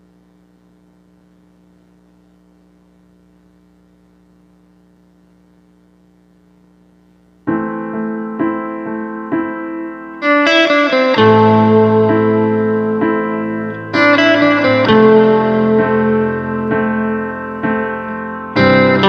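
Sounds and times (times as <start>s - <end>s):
faint low hum: 0.0s - 10.2s
piano chords: 7.5s - 19.0s.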